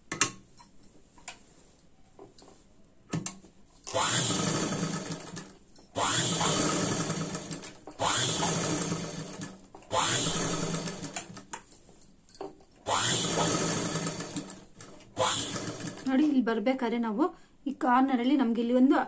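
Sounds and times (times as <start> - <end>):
sewing machine stitching: 3.9 - 11.5, 12.8 - 16.1.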